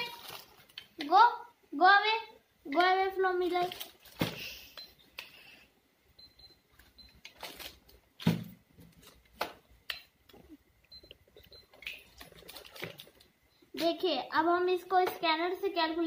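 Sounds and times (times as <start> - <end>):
faint high beeps: 10.4 - 12.1.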